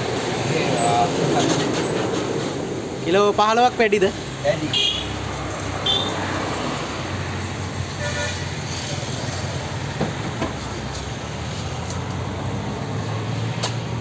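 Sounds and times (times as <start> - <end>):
road traffic rumble: 0.0 - 14.0
car horn toot: 4.7 - 5.2, 5.8 - 6.2, 8.0 - 8.4.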